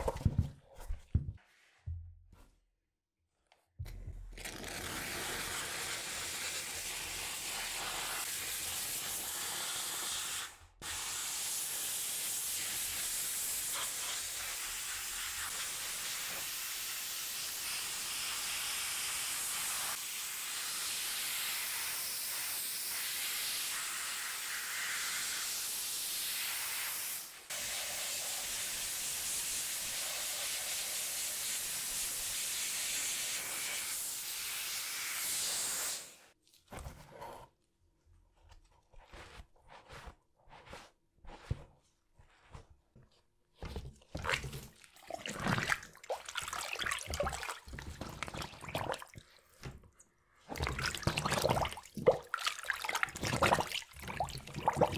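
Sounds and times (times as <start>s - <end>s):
water spraying hiss: 5.4s - 36.2s.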